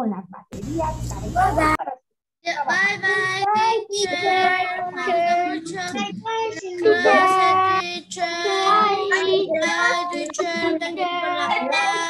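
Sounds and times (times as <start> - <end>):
children and woman singing: 2.4 - 12.0.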